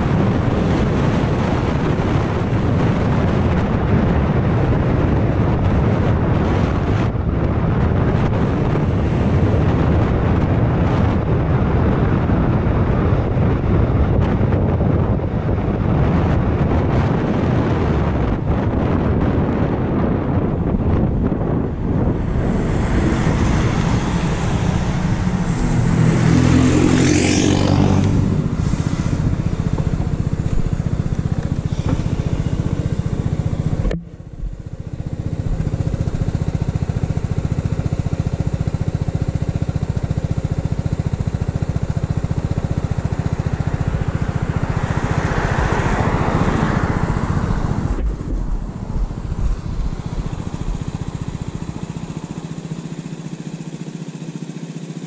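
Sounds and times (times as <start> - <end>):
vehicle passing: 20.5 - 35.1, 43.1 - 51.7
pickup truck passing: 20.7 - 34.4, 43.1 - 53.4
motor scooter engine idling: 23.9 - 45.5, 47.3 - 55.0.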